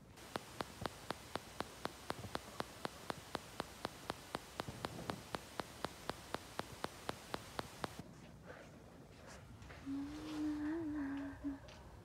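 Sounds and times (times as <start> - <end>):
faint hiss: 0.0 - 8.0, 9.8 - 12.0
sharp ticking: 0.0 - 8.0.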